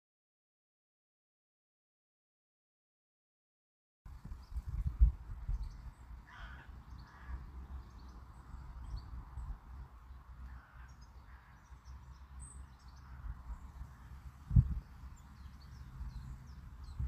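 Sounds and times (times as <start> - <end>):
faint bird calls: 5.6 - 9.5, 10.3 - 17.0.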